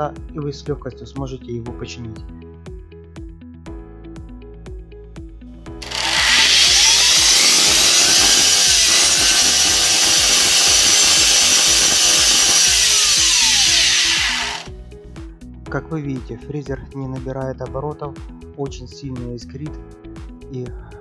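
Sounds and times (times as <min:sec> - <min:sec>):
electric router running: 0:05.8 - 0:14.7.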